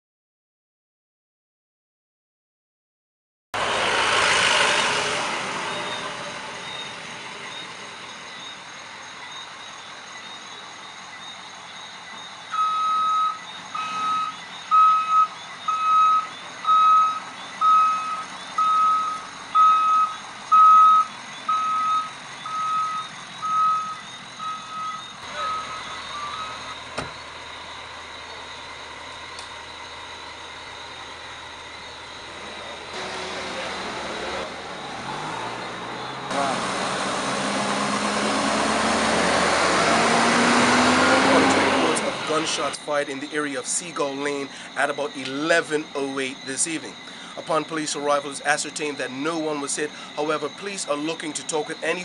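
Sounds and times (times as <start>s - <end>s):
burst of noise: 3.6s - 8.4s
high-pitched reversing alarm beeps: 5.6s - 33.0s, 40.5s - 52.0s.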